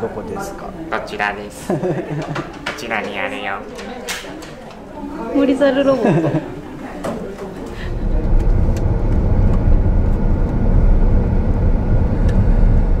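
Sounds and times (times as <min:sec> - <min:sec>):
car engine rumble: 0:07.9 - 0:13.0.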